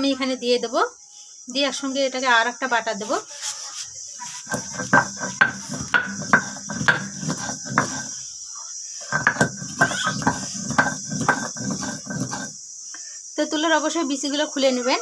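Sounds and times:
crickets chirring: 0:00.0 - 0:15.0
stone roller scraping on grinding stone: 0:04.2 - 0:08.2, 0:09.0 - 0:12.6.

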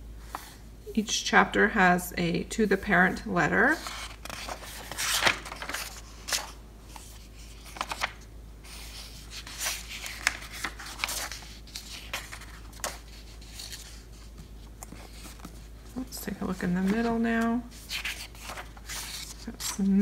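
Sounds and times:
pages being flipped: 0:03.8 - 0:16.0, 0:16.6 - 0:20.0.

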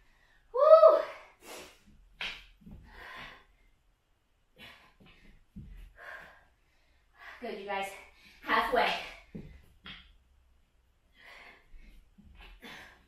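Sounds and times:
woman breathing hard: 0:02.7 - 0:03.8, 0:04.5 - 0:07.4, 0:11.1 - 0:13.0.

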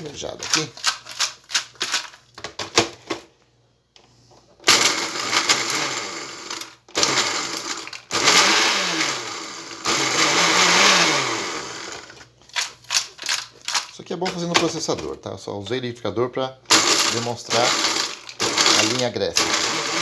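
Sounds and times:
blender motor bursts: 0:04.7 - 0:12.1, 0:16.7 - 0:20.0
bread rattling in blender: 0:16.7 - 0:20.0.

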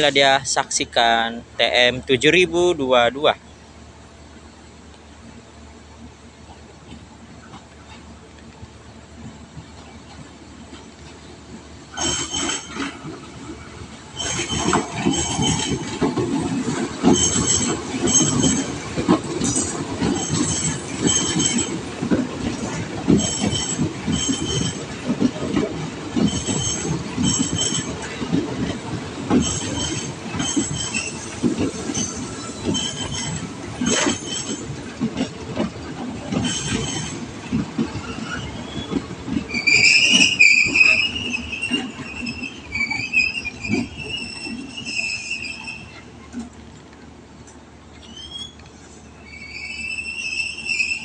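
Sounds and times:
train wheels rumbling: 0:00.0 - 0:51.0
wheels clacking over rail joints: 0:06.4 - 0:51.0
high-pitched wheel squeal: 0:38.2 - 0:46.1, 0:48.0 - 0:48.6, 0:49.2 - 0:51.0.

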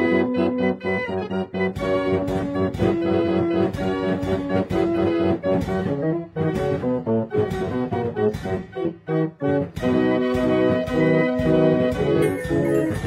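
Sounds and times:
instrumental music with steady beat: 0:00.0 - 0:13.0.

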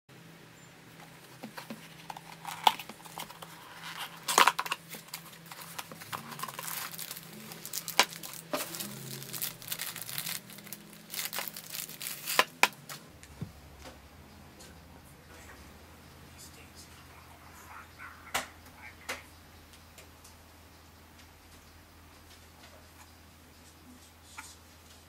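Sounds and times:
plastic wrapping crackling and tearing: 0:01.3 - 0:13.0.

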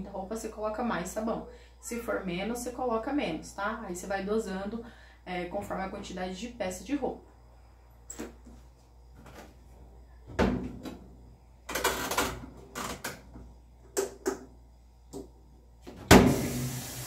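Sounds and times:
water running: 0:16.1 - 0:17.0.

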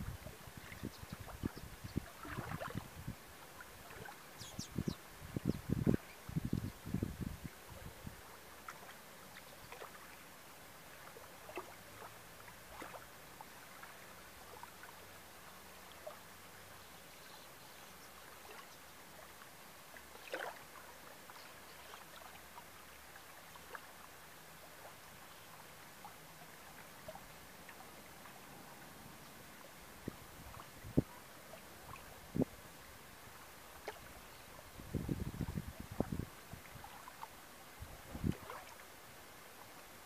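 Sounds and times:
gentle water lapping: 0:00.0 - 0:40.0
water splash: 0:02.2 - 0:02.9, 0:20.2 - 0:20.6.

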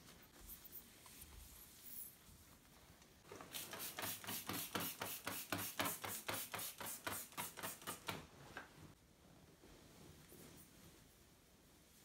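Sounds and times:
spray bottle squirting: 0:03.5 - 0:08.1.

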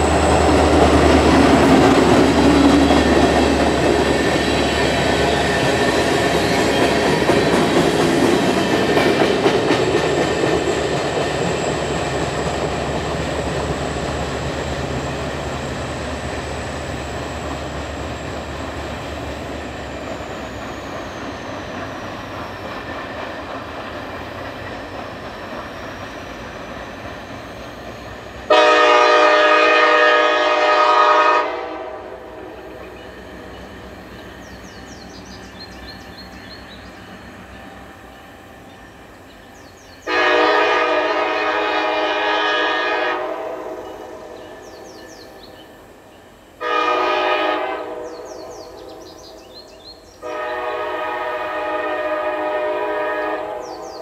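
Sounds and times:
freight cars rumbling: 0:00.0 - 0:28.6
diesel locomotive engine drone: 0:00.0 - 0:54.0
loud chime train horn: 0:28.4 - 0:32.2, 0:40.1 - 0:44.4, 0:46.6 - 0:48.2, 0:50.2 - 0:53.6.

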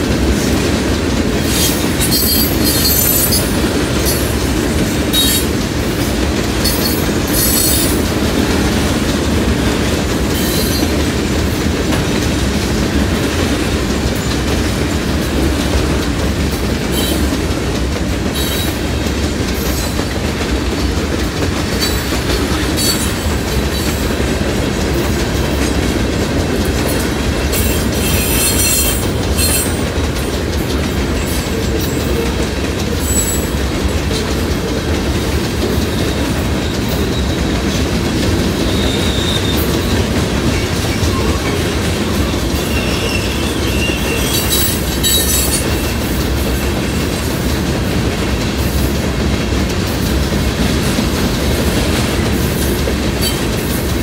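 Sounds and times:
train wheels rumbling on rails: 0:00.0 - 0:54.0
high-pitched wheel squeals: 0:42.6 - 0:45.6.

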